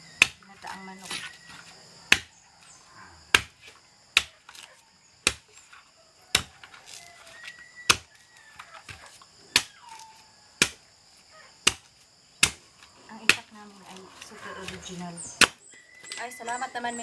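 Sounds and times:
knife chopping coconut husk: 0:00.1 - 0:02.4, 0:03.3 - 0:10.8, 0:11.6 - 0:12.6.

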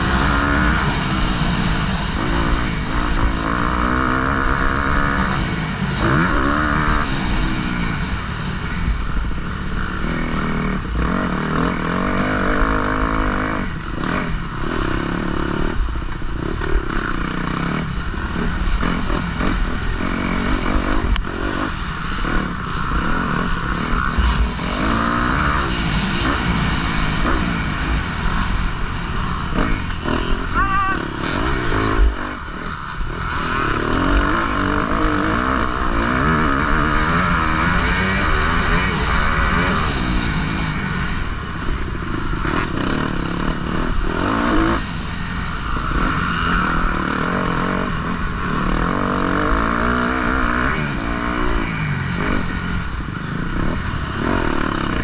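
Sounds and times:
motorbike engine revving: 0:00.0 - 0:55.0.

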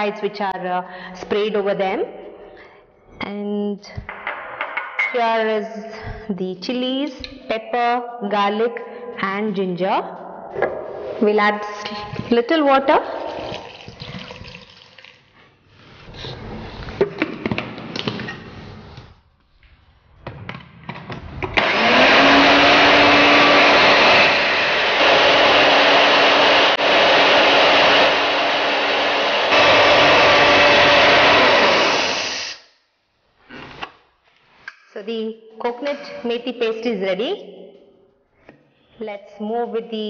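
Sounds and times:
electric blender grinding: 0:21.6 - 0:32.6.

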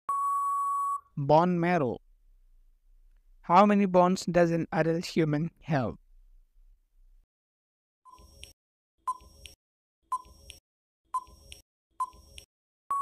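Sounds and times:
electronic tick-beeps: 0:11.2 - 0:13.0.

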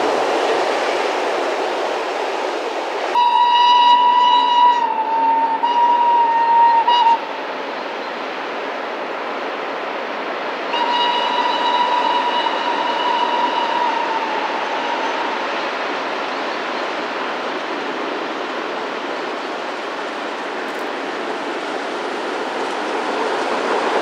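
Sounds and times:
freight train running: 0:00.0 - 0:24.0
steam locomotive whistle blasts: 0:03.1 - 0:07.4, 0:10.7 - 0:15.4.

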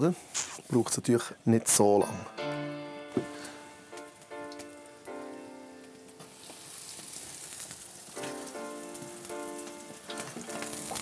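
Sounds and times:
soft background music: 0:01.6 - 0:06.8, 0:08.0 - 0:11.0
meat sizzling in a pan: 0:03.2 - 0:11.0.

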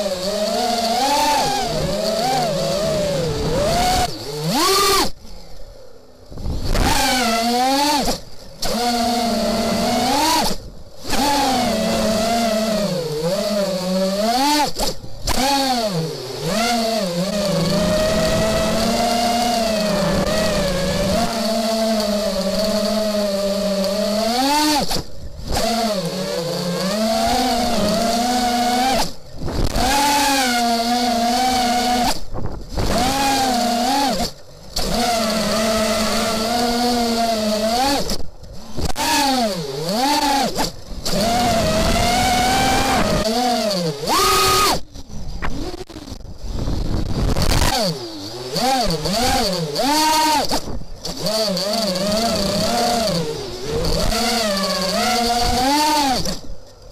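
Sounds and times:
drone propellers buzzing: 0:00.0 - 0:56.9.

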